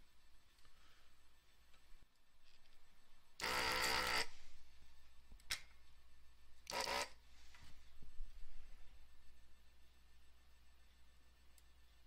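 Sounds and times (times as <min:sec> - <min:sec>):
desoldering pump buzzing: 0:03.4 - 0:04.4, 0:06.6 - 0:07.2.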